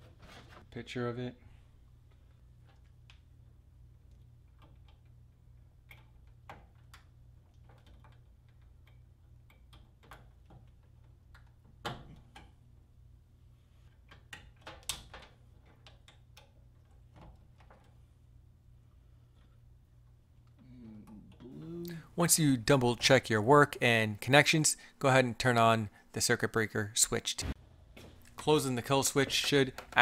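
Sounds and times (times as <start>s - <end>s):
wires and connectors clicking: 28.1s - 30.0s.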